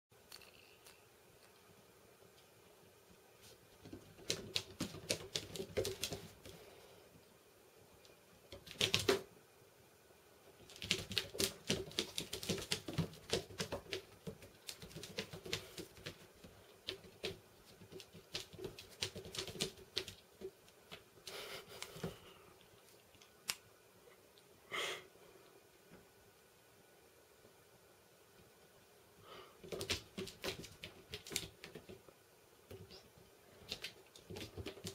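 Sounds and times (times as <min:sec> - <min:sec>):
kitten claws clicking on floor: 0:03.9 - 0:06.5, 0:08.5 - 0:09.2, 0:10.6 - 0:20.2, 0:29.6 - 0:32.0, 0:33.6 - 0:34.9.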